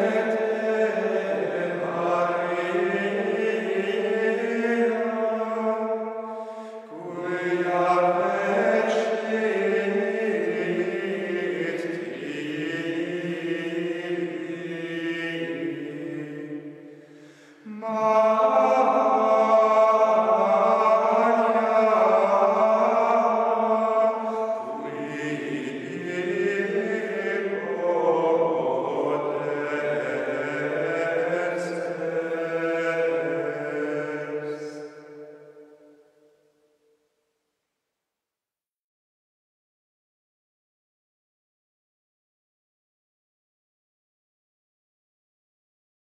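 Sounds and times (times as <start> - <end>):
monks' choir chanting plainchant: 0.0 - 16.9, 17.6 - 35.4.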